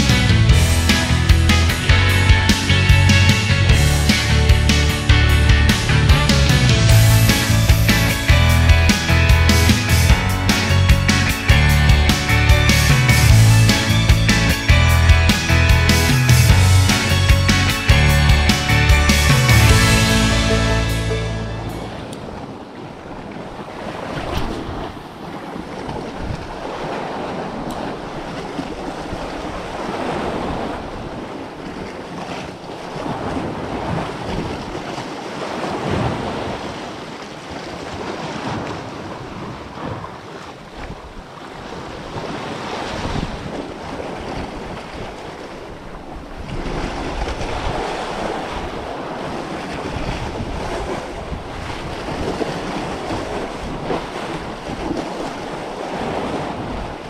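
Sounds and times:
wind buffeting microphone: 21.9 - 36.9, 37.5 - 57.0
waves washing against rocks: 22.0 - 57.0.

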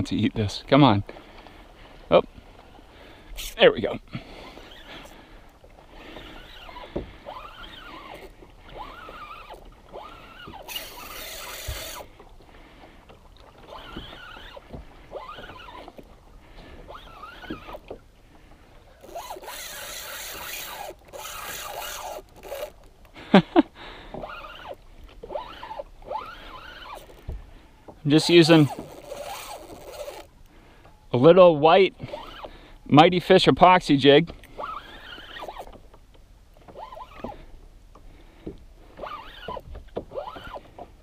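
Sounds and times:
fishing reel whining: 3.3 - 3.6, 4.2 - 12.3, 13.0 - 18.0, 18.9 - 22.9, 24.1 - 27.2, 28.2 - 30.3, 32.0 - 32.6, 34.4 - 35.8, 36.7 - 37.5, 38.9 - 40.9
rasping noise: 6.0 - 12.1, 16.8 - 17.8, 19.0 - 22.9, 24.2 - 27.2, 28.1 - 30.3, 34.5 - 35.8, 39.0 - 40.8.

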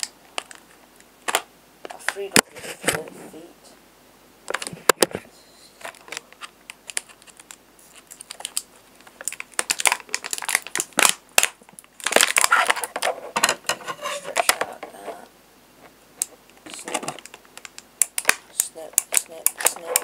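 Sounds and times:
plastic packaging crinkling: 0.0 - 1.4, 5.8 - 15.3, 16.2 - 20.0
sharp plastic clicks: 16.2 - 20.0.

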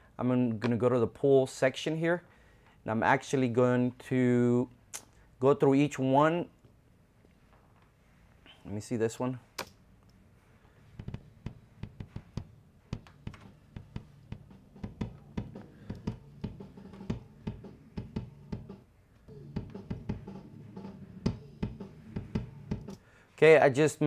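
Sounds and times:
drum hits: 11.0 - 23.0.

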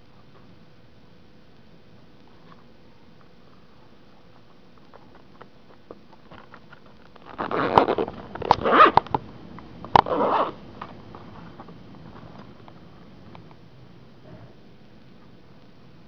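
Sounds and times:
zipper being pulled: 7.2 - 9.1, 10.0 - 10.6.

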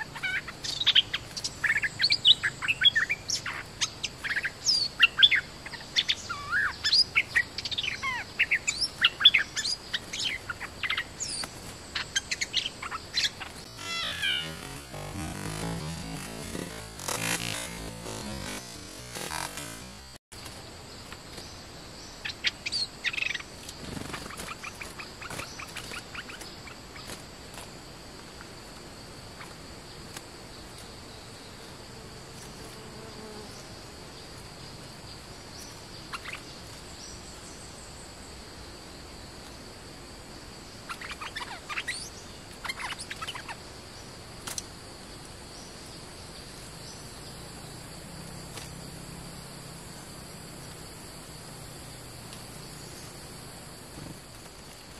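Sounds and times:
insects droning: 0.0 - 54.9
bird chattering calls: 12.0 - 20.0.

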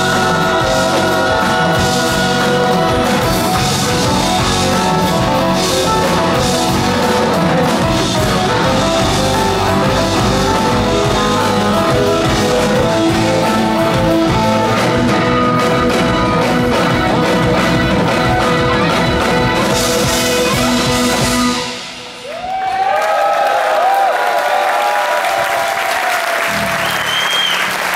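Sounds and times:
electric guitars: 0.0 - 22.3
keyboards: 0.0 - 22.3
drum kit: 0.0 - 22.9.

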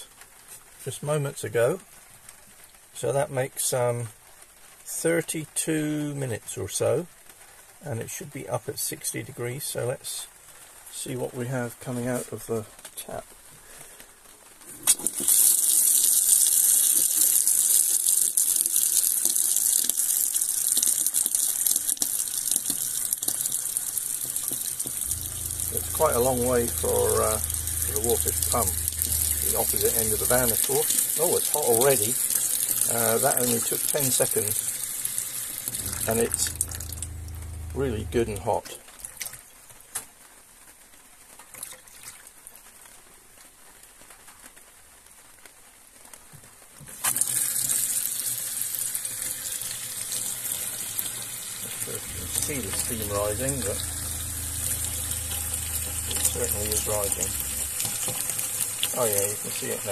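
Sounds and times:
tap water running into sink: 14.8 - 39.4, 46.9 - 59.9.

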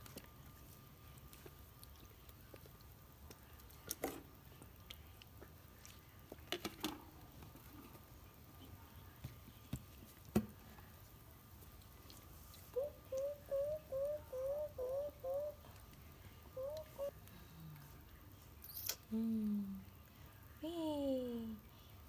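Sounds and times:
low steady hum: 0.0 - 22.0.

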